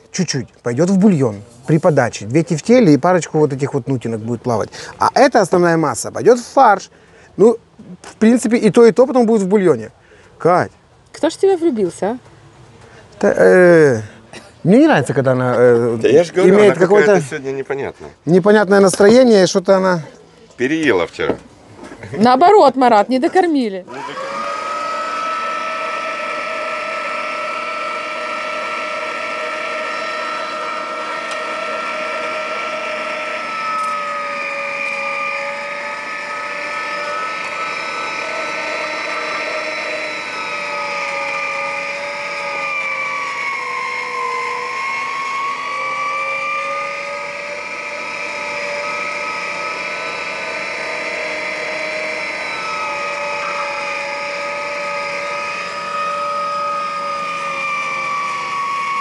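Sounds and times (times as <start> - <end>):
electric meat grinder whining: 23.9 - 59.0.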